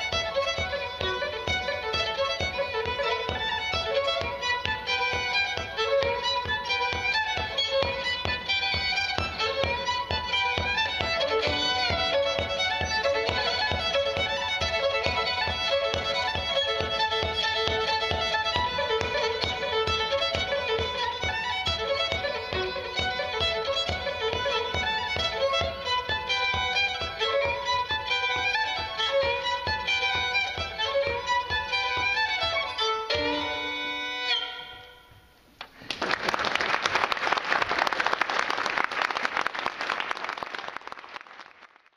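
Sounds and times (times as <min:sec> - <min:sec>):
fiddle playing dance tune: 0:00.0 - 0:35.3
audience applause: 0:35.8 - 0:41.9.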